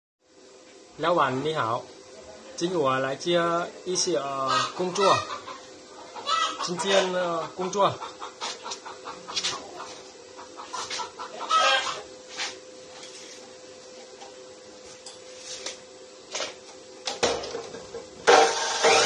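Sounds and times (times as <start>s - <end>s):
chop saw running: 18.2s - 19.0s.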